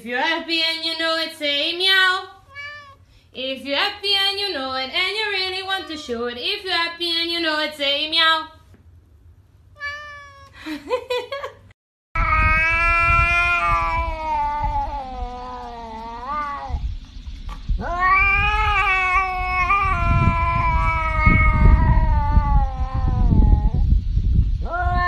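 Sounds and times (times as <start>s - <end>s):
cat yowling: 2.4s - 3.0s, 5.4s - 6.2s, 9.8s - 10.6s, 12.2s - 16.8s, 17.8s - 23.8s, 24.6s - 25.0s
low rumbling noise: 12.2s - 25.0s.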